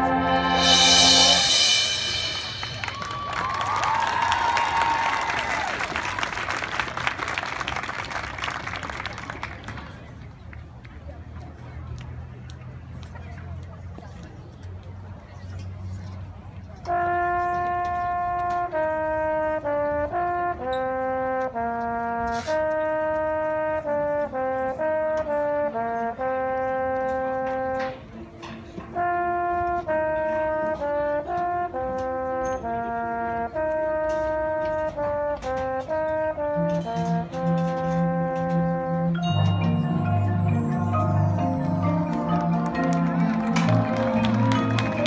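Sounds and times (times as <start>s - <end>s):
low held brass note: 0.0s - 3.6s
marching band brass melody: 0.0s - 7.7s, 16.9s - 28.1s, 28.9s - 45.0s.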